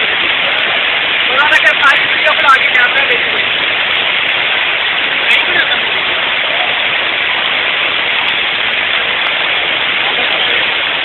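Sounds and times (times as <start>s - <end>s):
river water rushing: 0.0s - 11.0s.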